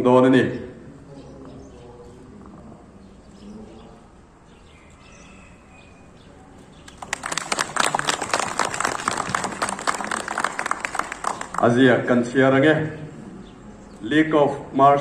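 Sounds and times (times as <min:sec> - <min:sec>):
group applauding: 0:06.8 - 0:11.9.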